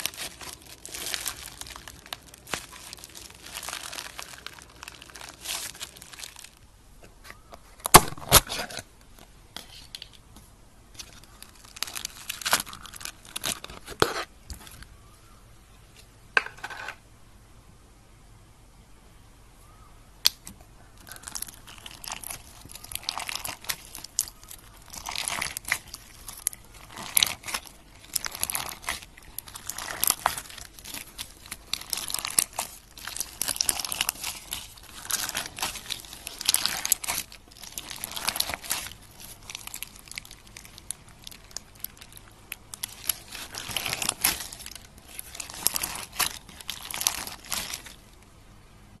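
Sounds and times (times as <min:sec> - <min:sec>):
slime crackling and clicking: 0:20.2 - 0:48.1.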